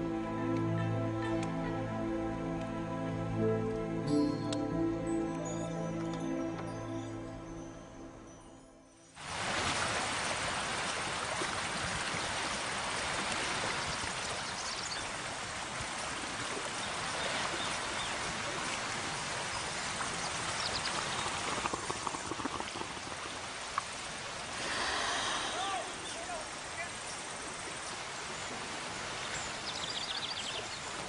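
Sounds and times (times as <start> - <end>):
running water rushing: 9.2 - 31.0.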